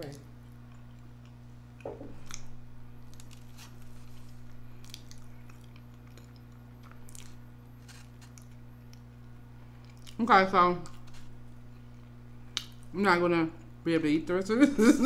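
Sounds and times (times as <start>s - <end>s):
low hum: 0.0s - 15.0s
person chewing: 0.4s - 10.2s, 10.8s - 12.9s.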